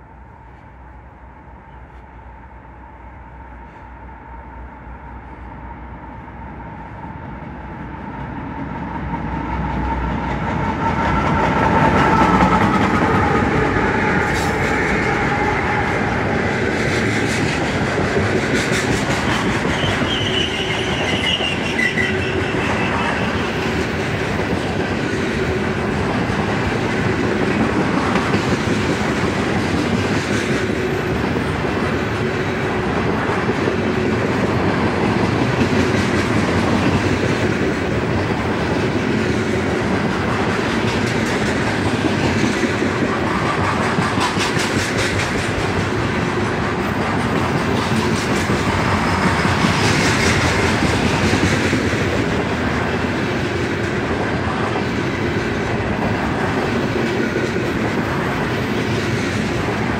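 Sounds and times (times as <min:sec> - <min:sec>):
train wheels clickety-clack: 0:08.0 - 0:59.9
high wheel squeals: 0:19.6 - 0:23.4.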